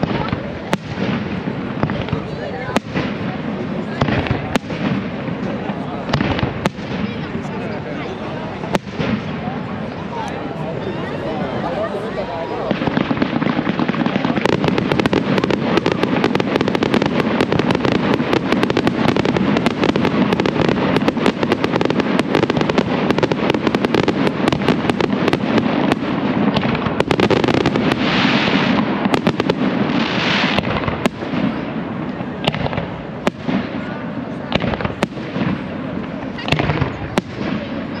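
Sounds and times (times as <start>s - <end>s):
fireworks crackling: 0.0s - 38.0s
fireworks hissing: 11.8s - 38.0s.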